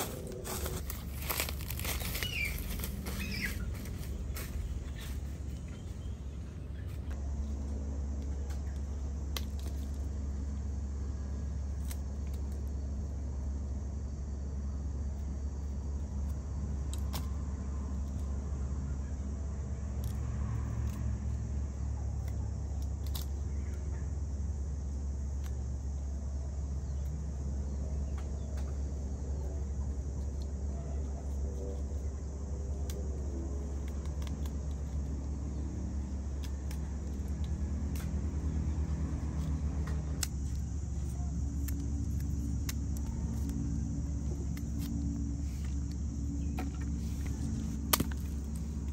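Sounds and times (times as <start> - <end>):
steady low rumble: 0.0 - 48.9
machete cutting root: 46.5 - 48.9.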